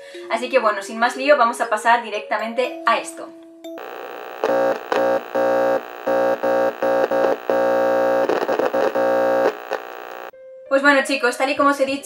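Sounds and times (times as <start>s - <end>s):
glitchy noise burst: 3.8s - 10.3s.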